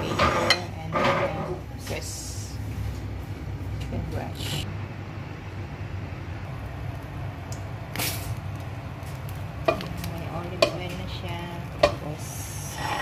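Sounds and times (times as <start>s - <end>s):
wok and utensils knocking: 0.0s - 1.6s, 9.6s - 13.0s
steady low hum: 0.0s - 13.0s.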